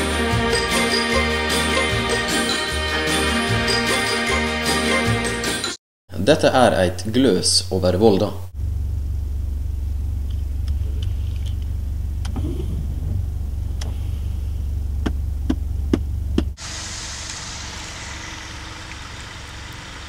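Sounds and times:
car engine humming: 8.6s - 20.0s.

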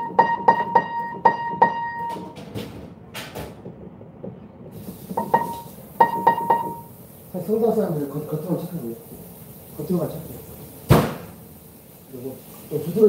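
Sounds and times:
high piano note struck repeatedly: 0.0s - 2.4s, 5.2s - 6.9s.

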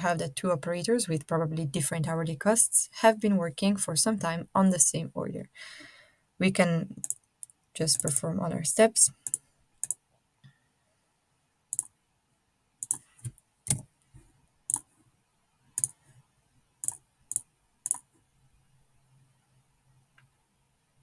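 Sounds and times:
computer mouse clicking: 7.0s - 8.3s, 9.1s - 10.0s, 11.7s - 11.9s, 12.8s - 13.9s, 14.7s - 14.9s, 15.8s - 16.0s, 16.8s - 18.2s.

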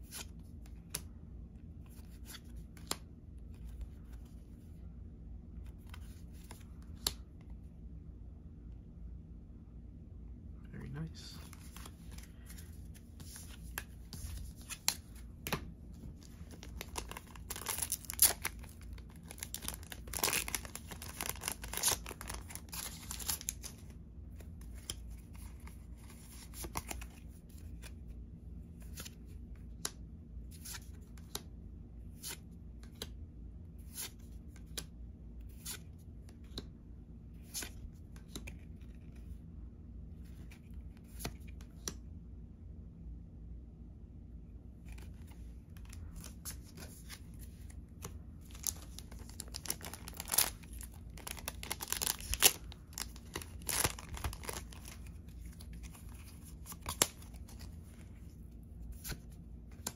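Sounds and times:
foil pack tearing and crinkling: 16.6s - 23.7s, 48.6s - 55.0s.

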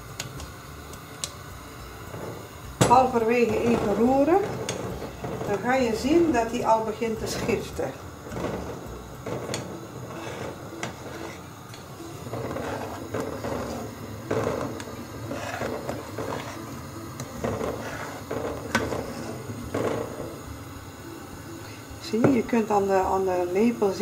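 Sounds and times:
spoon stirring milk in a pot: 2.3s - 6.1s, 7.2s - 20.4s.

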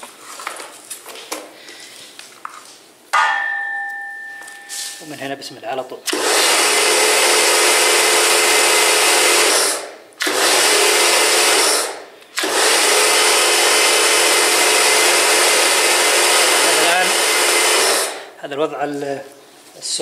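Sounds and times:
pressure washer motor hum: 6.1s - 18.3s.

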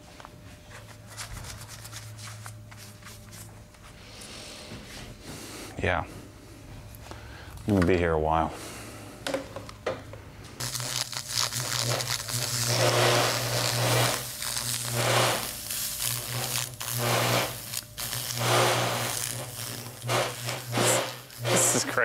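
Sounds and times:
low electrical buzz: 0.0s - 22.0s
brush sizzling and scratching metal: 10.6s - 22.0s.

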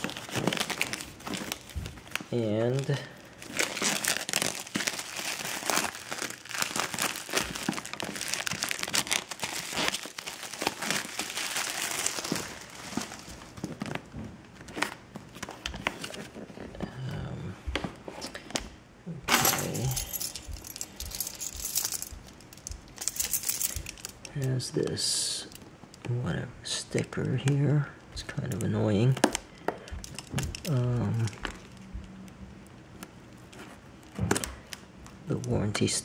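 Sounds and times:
plastic wrap crinkling and tearing: 0.0s - 16.6s, 28.3s - 31.9s.

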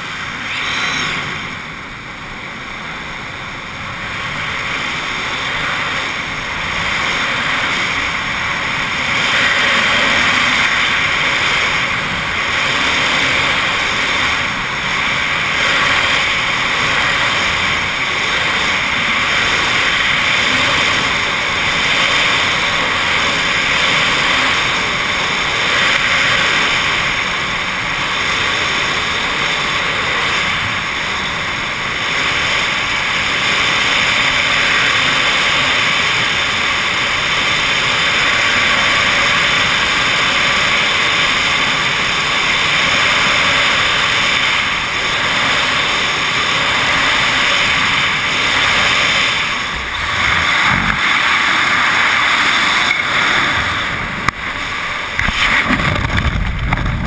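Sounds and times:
freefall wind rushing: 0.0s - 57.0s.

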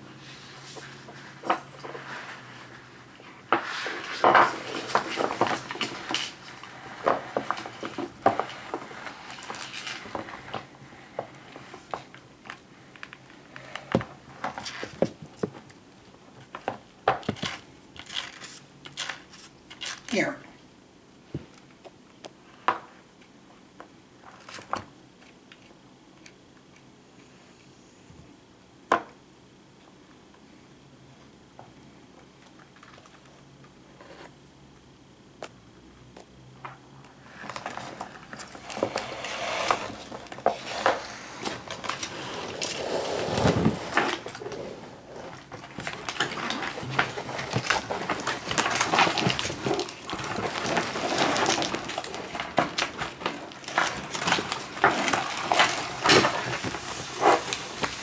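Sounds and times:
plastic bottles clattering: 45.4s - 58.0s.

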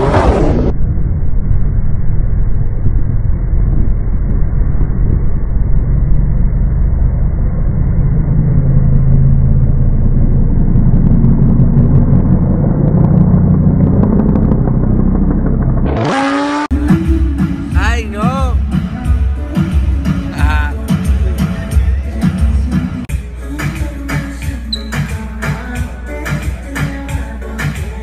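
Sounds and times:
cars driving on road: 0.0s - 16.7s.

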